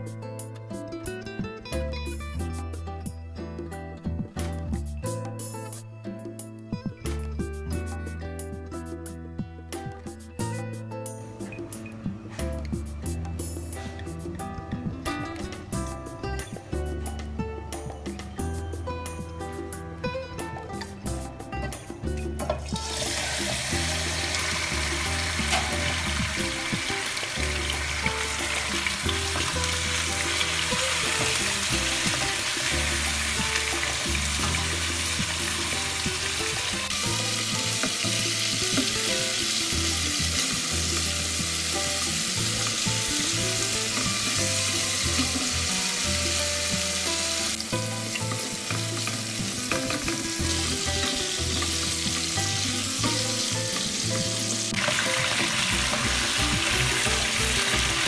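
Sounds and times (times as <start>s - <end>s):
chicken sizzling in hot oil: 22.8s - 58.0s.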